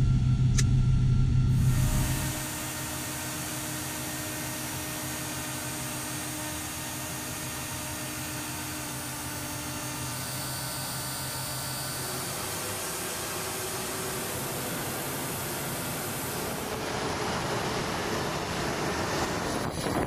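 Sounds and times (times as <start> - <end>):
mid-pitched tone: 0.0 - 2.6
low cockpit hum: 0.0 - 20.0.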